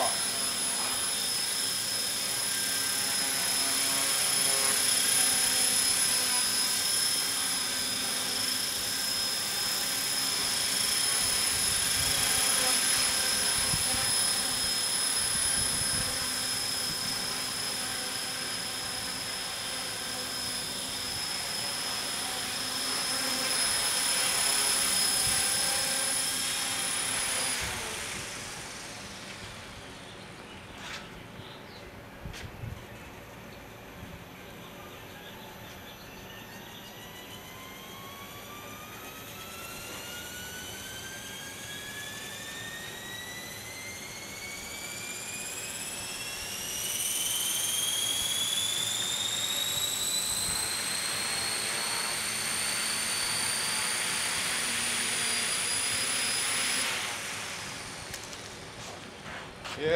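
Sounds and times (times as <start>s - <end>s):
rotors spooling down: 0.0s - 30.3s, 35.6s - 59.0s
rc helicopter rotor whine: 0.0s - 59.9s.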